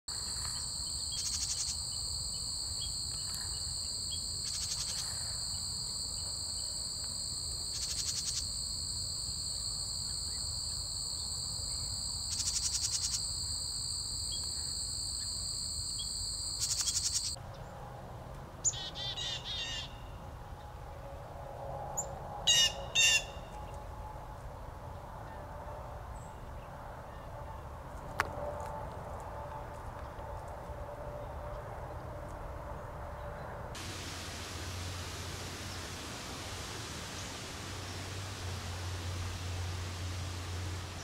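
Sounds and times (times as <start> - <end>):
high-pitched insect chorus: 0.1 - 17.4
pulsing insect buzz: 0.1 - 17.4.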